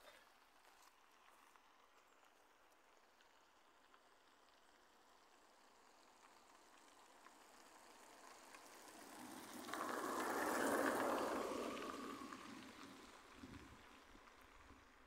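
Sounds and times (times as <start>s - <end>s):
vehicle passing by: 7.8s - 14.6s.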